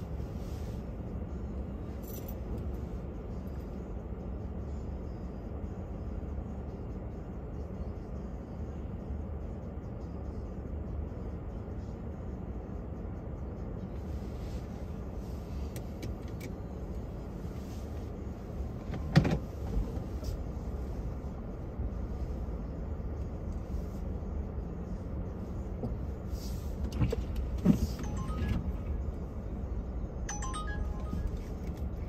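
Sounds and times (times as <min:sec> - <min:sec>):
car driving rumble: 0:00.0 - 0:32.0.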